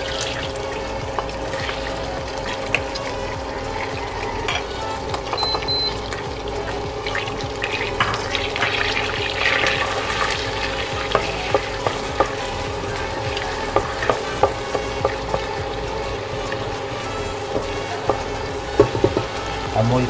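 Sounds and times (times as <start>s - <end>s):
butter sizzling in a frying pan: 0.0s - 20.0s
spatula knocking against pan: 11.0s - 12.5s, 13.7s - 15.5s, 17.5s - 19.4s.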